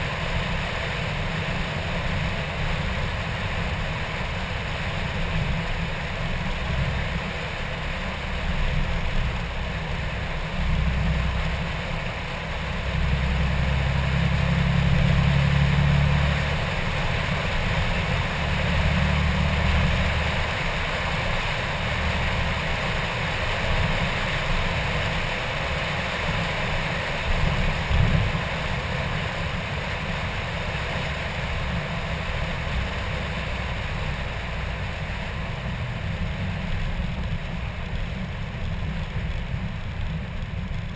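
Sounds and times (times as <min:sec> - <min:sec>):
road noise: 0:00.0 - 0:40.9
rush of wind: 0:16.2 - 0:33.2.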